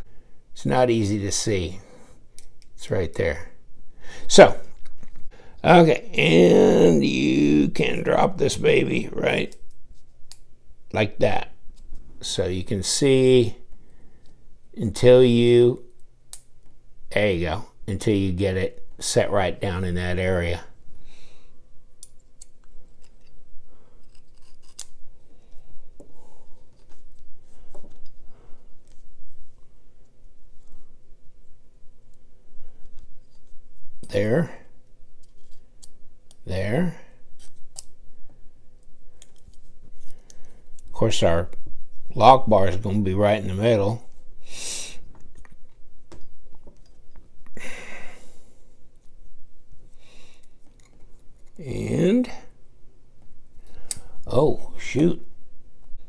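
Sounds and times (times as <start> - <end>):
person breathing: 0.0 - 0.5, 3.9 - 4.3, 5.3 - 5.6, 21.0 - 21.8, 23.6 - 24.2, 25.2 - 26.8, 27.4 - 28.8, 44.4 - 45.1, 47.6 - 48.8, 49.9 - 50.6.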